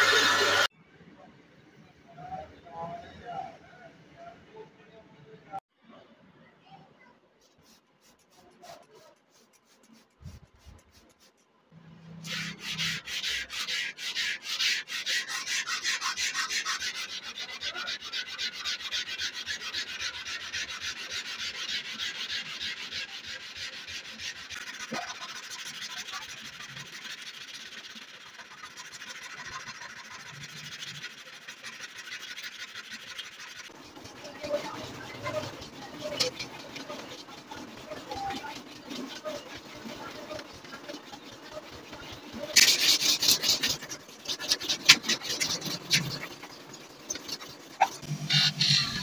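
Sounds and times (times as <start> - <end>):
sanding block scraping blade: 0.0 - 0.7, 7.4 - 11.4, 12.1 - 49.0
spray bottle squirts: 42.5 - 46.4.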